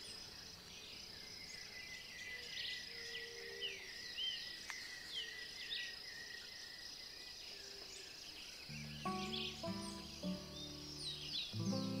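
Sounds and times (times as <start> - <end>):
birds chirping: 0.0 - 12.0
insect trill: 0.0 - 12.0.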